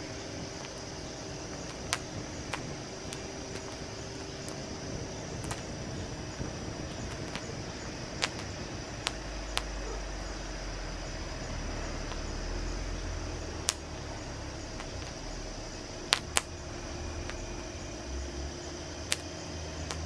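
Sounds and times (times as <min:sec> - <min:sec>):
low rumble: 0:00.0 - 0:20.0
steady hiss: 0:00.0 - 0:20.0
popcorn kernels popping: 0:00.5 - 0:09.9, 0:13.5 - 0:14.0, 0:14.7 - 0:15.2, 0:16.1 - 0:16.6, 0:19.0 - 0:20.0.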